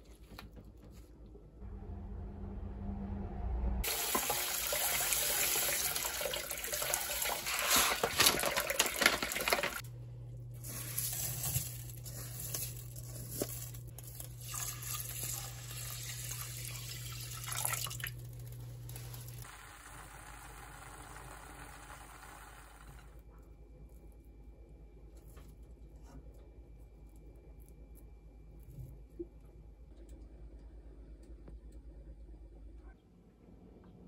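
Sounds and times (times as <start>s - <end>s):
steady low hum: 0.6s - 3.9s, 9.8s - 14.6s
water pouring into metal pot: 3.8s - 9.8s, 14.2s - 18.4s.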